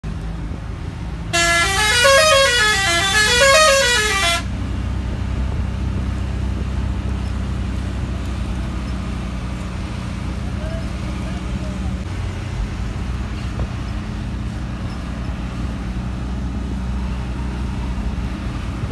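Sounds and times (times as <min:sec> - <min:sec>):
bus engine running: 0:00.0 - 0:18.9
bus musical horn: 0:01.3 - 0:04.6.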